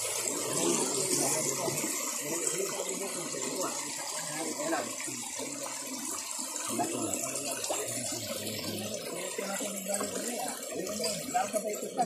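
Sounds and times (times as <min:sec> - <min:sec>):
faint voices: 0:00.2 - 0:12.0.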